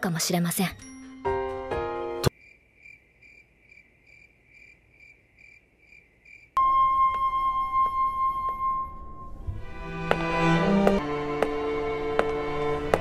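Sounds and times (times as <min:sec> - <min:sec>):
cricket chirping: 0:02.3 - 0:06.6.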